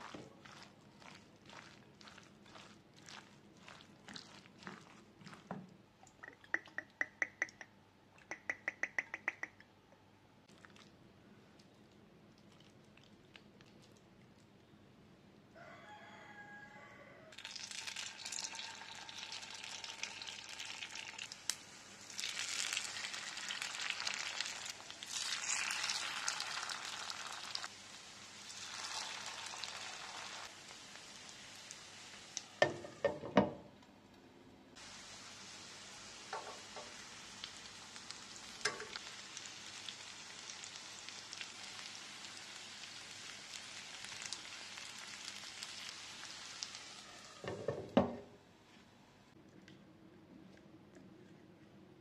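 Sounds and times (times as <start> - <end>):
batter sizzling in hot oil: 0.0 - 5.6, 17.4 - 33.2, 34.8 - 47.8.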